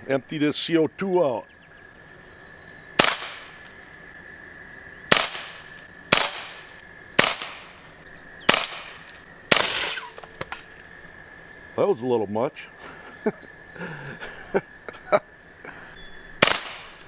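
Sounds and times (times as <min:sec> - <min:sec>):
pellet pistol shots: 0:03.0 - 0:03.5, 0:05.1 - 0:07.8, 0:08.5 - 0:10.5, 0:16.4 - 0:17.0.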